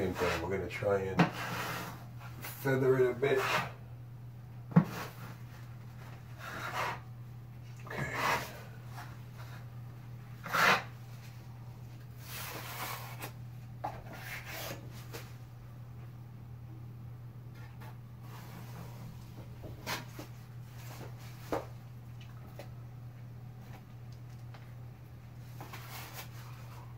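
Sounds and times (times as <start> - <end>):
drywall knife scraping: 0.0 - 0.6, 1.2 - 2.6, 3.2 - 3.8, 6.3 - 7.1, 7.9 - 9.6, 10.4 - 11.0, 12.2 - 15.2.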